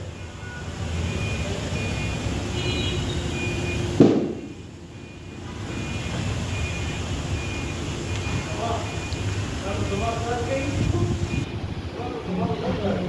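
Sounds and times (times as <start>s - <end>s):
sharp knock: 4.0s - 4.5s.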